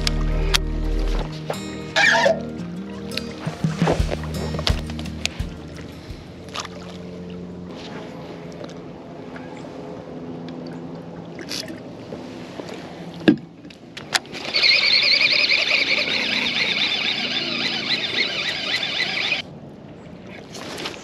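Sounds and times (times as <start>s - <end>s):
low motor hum: 0.0s - 19.4s
fishing reel whirring: 14.3s - 19.4s.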